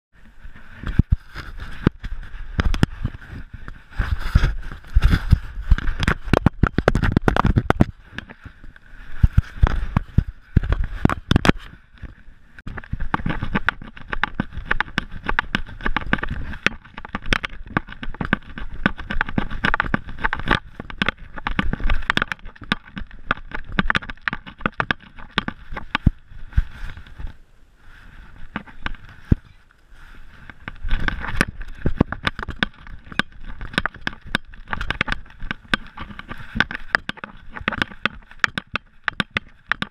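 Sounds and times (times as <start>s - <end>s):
camera mount knocking and rattling: 30.7s - 39.9s.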